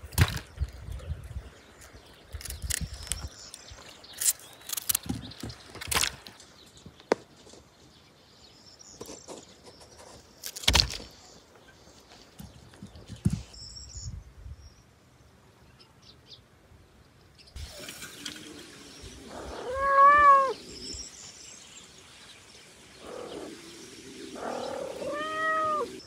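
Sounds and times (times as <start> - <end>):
faint hiss: 16.6 - 26.0.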